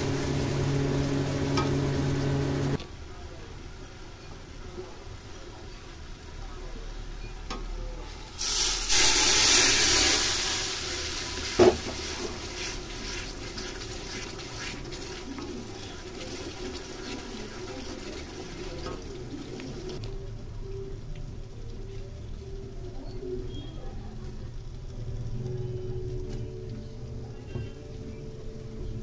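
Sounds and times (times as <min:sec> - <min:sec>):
curry sizzling in a pan: 0:00.0 - 0:29.0.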